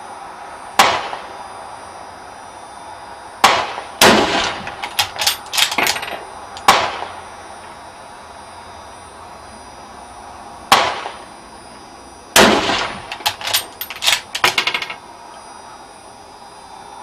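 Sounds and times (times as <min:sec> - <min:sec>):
rifle shots: 0:03.4 - 0:07.1, 0:10.7 - 0:11.2, 0:12.4 - 0:14.6.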